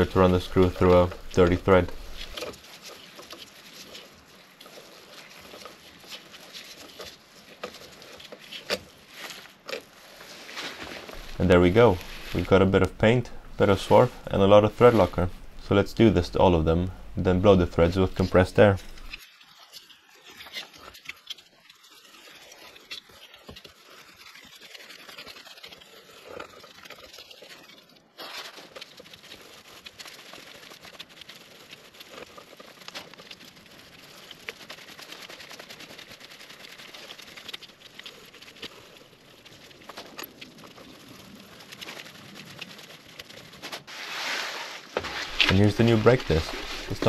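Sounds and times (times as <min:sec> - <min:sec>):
small irregular clicks: 0:00.0 - 0:10.2, 0:16.9 - 0:43.9.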